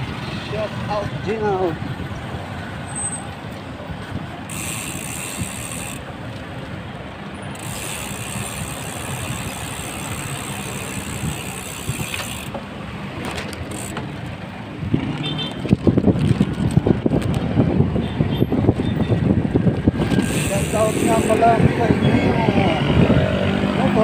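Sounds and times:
road and traffic noise: 0.0s - 24.0s
bicycle rolling: 3.2s - 17.8s, 19.2s - 21.6s
bicycle freewheel ratcheting tick: 4.5s - 6.1s, 7.5s - 12.6s, 13.6s - 14.0s, 20.0s - 21.4s.

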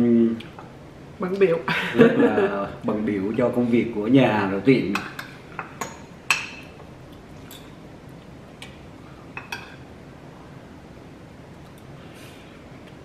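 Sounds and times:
cutlery clinking on plates: 9.4s - 9.8s.

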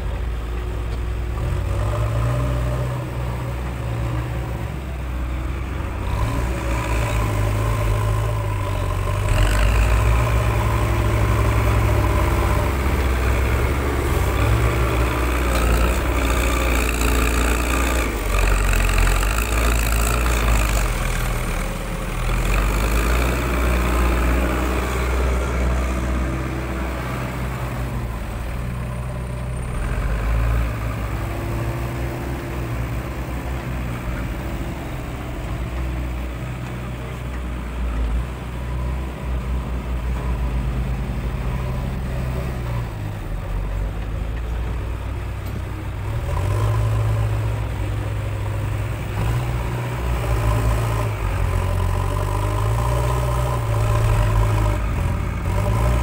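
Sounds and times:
diesel engines revving: 0.0s - 56.0s
digging and pushing soil: 5.4s - 28.2s.

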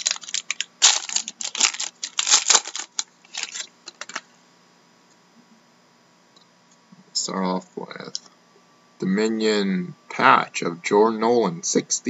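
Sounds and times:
foil wrapper crinkling and tearing: 0.0s - 4.2s.

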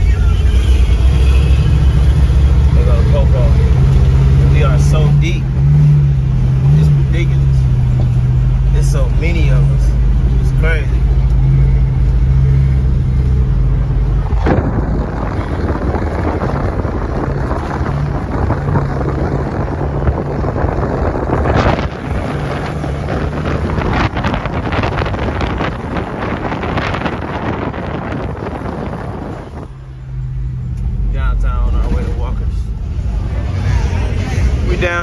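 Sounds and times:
car engine running: 0.0s - 35.0s
wind on microphone: 14.2s - 29.8s.

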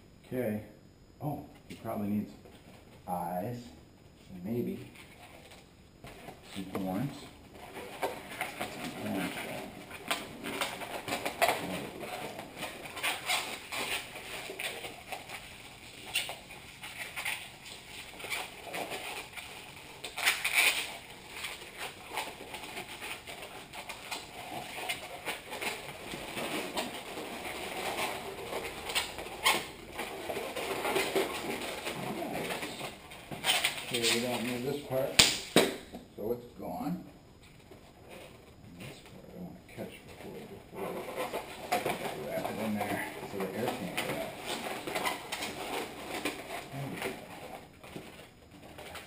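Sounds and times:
balloon squeaking as twisted: 7.6s - 34.6s, 40.3s - 49.0s.

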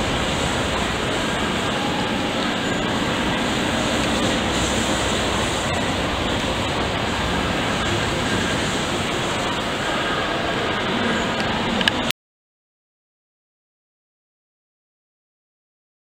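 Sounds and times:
pumping engine machinery rushing: 0.0s - 12.1s.

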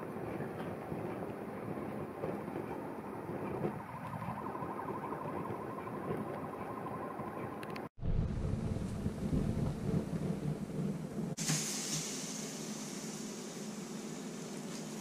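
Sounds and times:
faint fluttering tone: 3.3s - 10.0s
charcoal fire burning: 8.0s - 15.0s.

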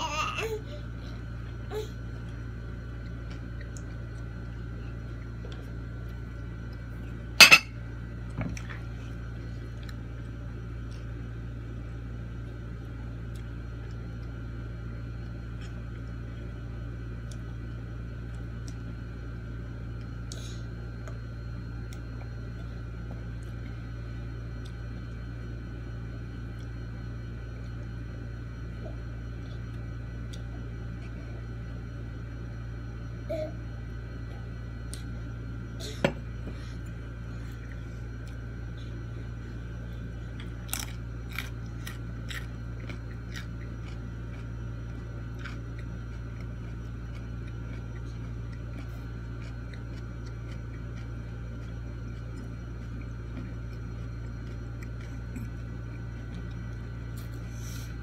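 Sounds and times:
steady hum: 0.0s - 58.0s
tableware clinking: 7.4s - 7.7s.

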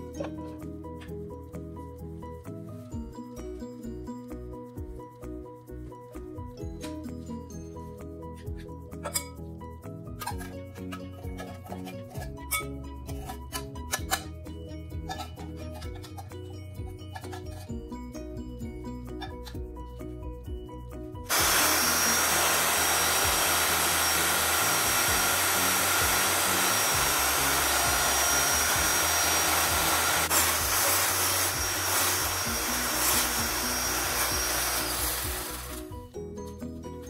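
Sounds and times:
background music: 0.0s - 37.0s
electric hand mixer whining: 21.3s - 36.1s.

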